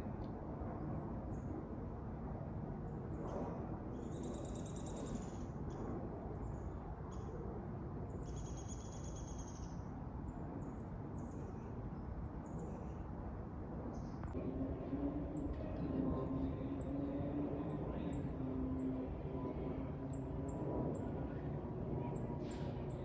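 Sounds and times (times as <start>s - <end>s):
steady low rumble: 13.7s - 23.0s.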